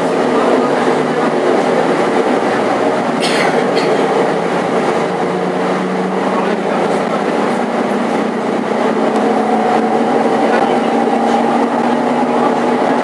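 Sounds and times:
bus engine drone: 0.0s - 13.0s
road noise: 0.0s - 13.0s.

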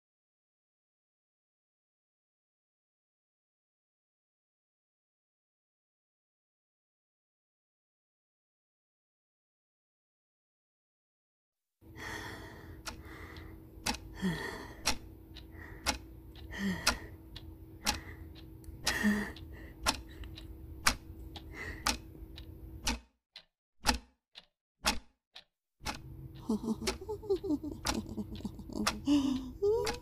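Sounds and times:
sharp clicks or knocks: 22.8s - 23.1s, 23.8s - 26.1s
frightened gasps: 26.4s - 30.0s.

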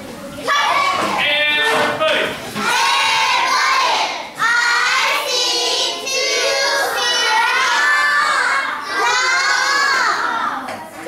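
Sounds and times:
children chanting together: 2.6s - 10.8s.

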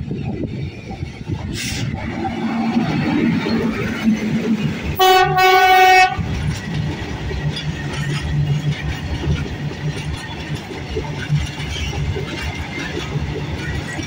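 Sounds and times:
train wheels rumbling on rails: 0.0s - 14.0s
locomotive horn blast: 5.0s - 6.3s.

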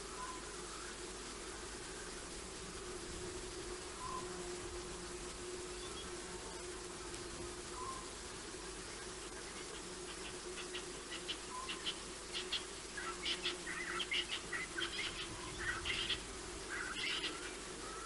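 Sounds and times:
steady low hum: 0.0s - 18.0s
birds chirping: 7.7s - 18.0s.

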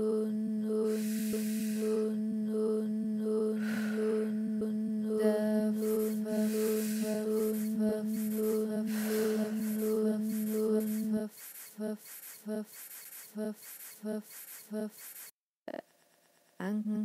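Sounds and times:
synth drone: 0.0s - 15.2s
short pulsed synth notes: 0.0s - 15.3s
fast ticking beat: 5.8s - 15.3s.

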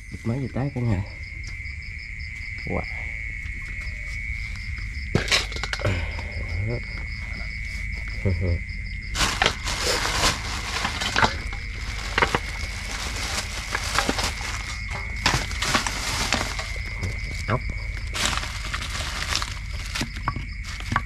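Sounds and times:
high-pitched insect drone: 0.0s - 21.0s
pulsing insect chirp: 0.0s - 21.0s
handling knocks and rustles: 9.2s - 21.0s.

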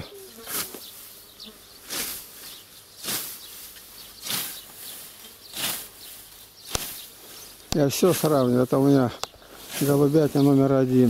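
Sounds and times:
scythe swishing through grass: 0.2s - 1.2s, 1.8s - 8.3s, 9.6s - 10.4s
sharp click: 6.7s - 6.9s.

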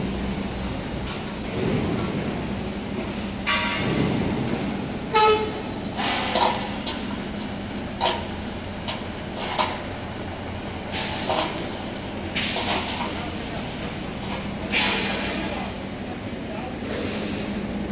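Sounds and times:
short horn toot: 5.1s - 5.6s.

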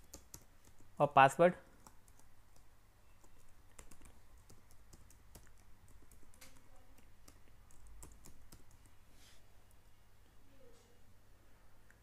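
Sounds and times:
keystrokes on computer keyboard: 0.0s - 1.0s, 1.6s - 9.0s.

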